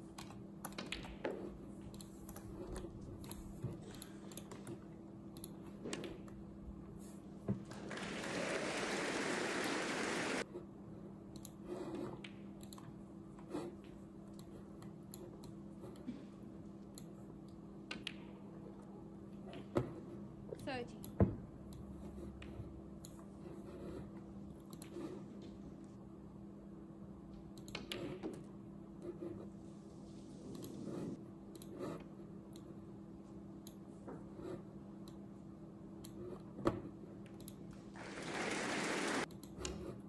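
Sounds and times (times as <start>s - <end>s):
steady low hum: 0.0s - 8.2s.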